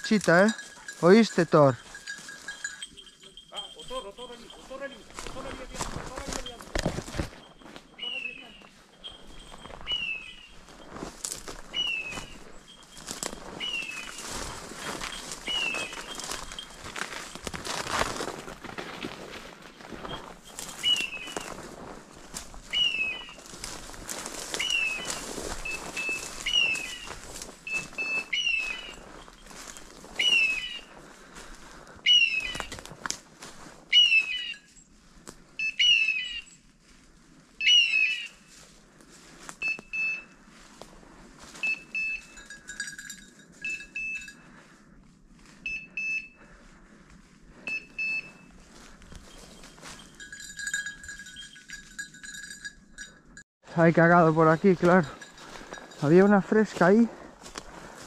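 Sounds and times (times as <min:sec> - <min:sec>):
footsteps on dry leaves: 0:00.0 - 0:44.6, 0:46.4 - 0:52.5, 0:53.6 - 0:58.0
electronic collar beeps: 0:11.7 - 0:17.0, 0:24.5 - 0:30.9, 0:39.6 - 0:40.4, 0:41.6 - 0:44.4, 0:45.6 - 0:46.5, 0:47.6 - 0:51.7.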